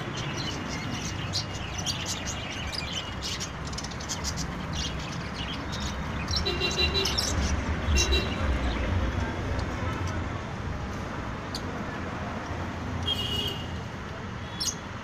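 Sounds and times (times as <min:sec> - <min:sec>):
birds chirping and twittering: 0:00.0 - 0:10.2, 0:14.4 - 0:15.0.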